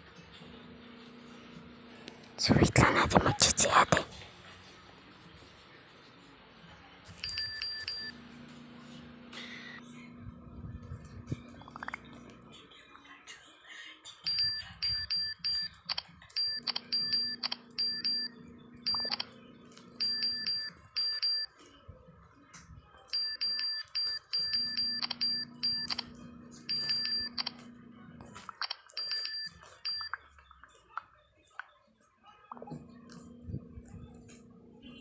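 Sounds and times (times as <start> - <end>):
phone keyboard key beeps: 7.2 - 8.1, 14.3 - 19.3, 20.0 - 21.5, 23.1 - 26.1, 26.7 - 27.6, 28.5 - 30.2
low hum: 32.5 - 35.0.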